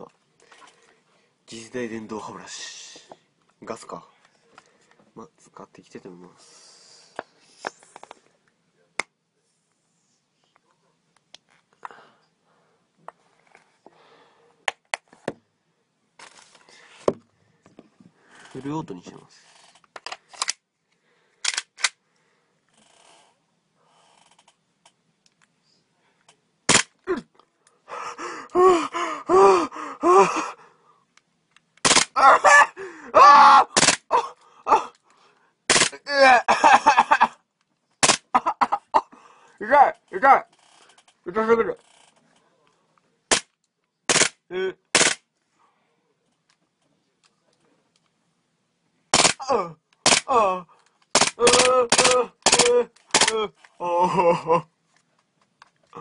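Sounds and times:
airsoft pistol crack: 26.7 - 26.9, 31.8 - 32.2, 33.8 - 34.1, 35.7 - 36.0, 38.0 - 38.3, 44.1 - 44.4, 45.0 - 45.2, 49.2 - 49.4, 50.0 - 50.3
man's muffled cries: 28.2 - 30.6, 32.2 - 35.0, 36.0 - 36.6, 49.4 - 50.7, 51.4 - 54.7
person crying out in pain: 28.2 - 30.6, 32.1 - 35.0, 36.0 - 37.2, 49.4 - 54.7
airsoft pistol automatic bursts: 31.8 - 32.2, 33.8 - 34.0, 35.7 - 36.0, 44.1 - 45.2, 49.2 - 49.4, 50.0 - 50.3, 51.1 - 53.3.

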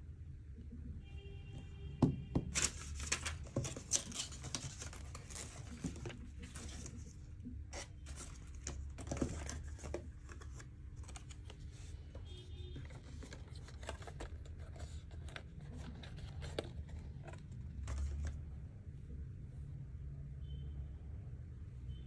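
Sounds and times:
paper packaging rustling: 2.5 - 18.6.

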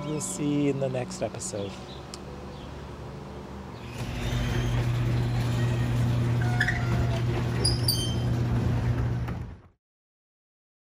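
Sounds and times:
garage door opener motor hum: 3.8 - 9.8.

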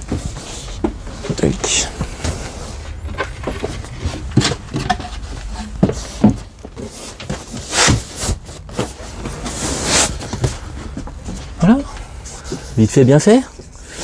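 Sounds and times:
wooden knocks and thumps: 0.0 - 8.0
cushions rustling: 0.0 - 14.0.

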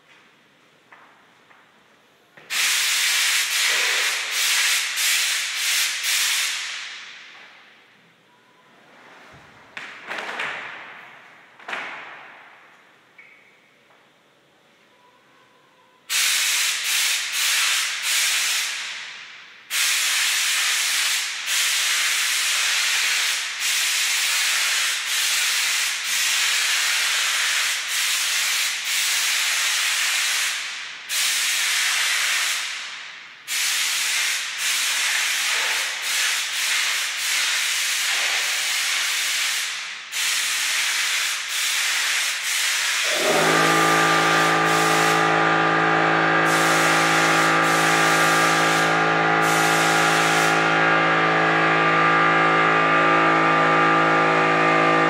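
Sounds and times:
paint spray gun hissing: 2.5 - 7.0, 16.1 - 19.1, 19.7 - 32.9, 33.5 - 45.5, 46.4 - 50.8.

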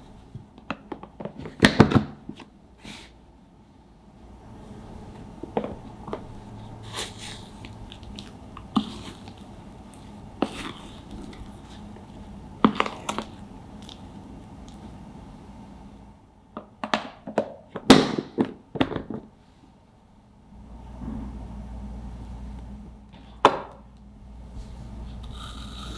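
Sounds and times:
spoon scraping ice cream tub: 6.2 - 14.1.

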